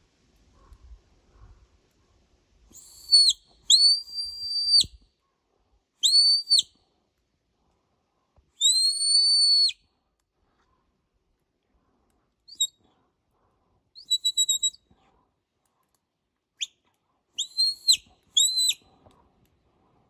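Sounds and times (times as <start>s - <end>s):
high whistle blasts: 2.8s - 5.0s, 6.0s - 6.7s, 8.6s - 9.8s, 14.0s - 14.8s, 17.4s - 18.8s.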